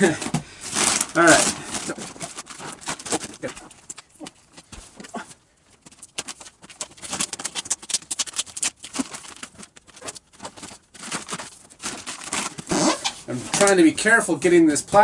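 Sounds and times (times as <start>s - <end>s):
plastic crinkling: 0.0s - 14.1s
scissors cutting plastic: 6.1s - 13.8s.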